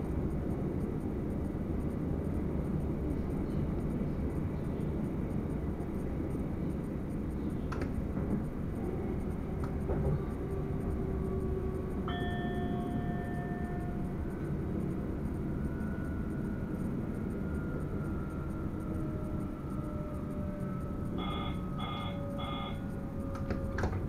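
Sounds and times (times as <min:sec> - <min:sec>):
faint high whine: 0:00.0 - 0:24.0
train low rumble: 0:00.0 - 0:24.0
multi-pitch ringing sound: 0:12.0 - 0:23.3.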